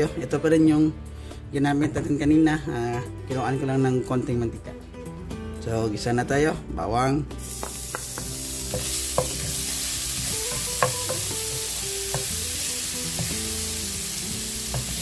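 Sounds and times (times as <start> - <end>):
garlic sizzling in oil: 7.4 - 15.0
spatula tapping pan: 7.6 - 9.8, 10.4 - 13.5, 14.6 - 15.0.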